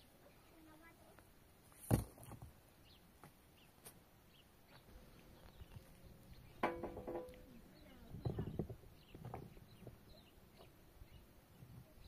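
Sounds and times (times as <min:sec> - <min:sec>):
faint bird chirps: 0:07.3 - 0:12.0.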